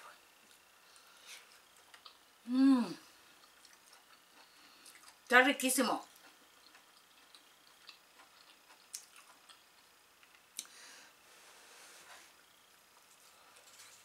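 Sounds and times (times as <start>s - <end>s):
faint chewing: 0.4s - 2.3s, 3.2s - 5.3s, 6.0s - 10.8s.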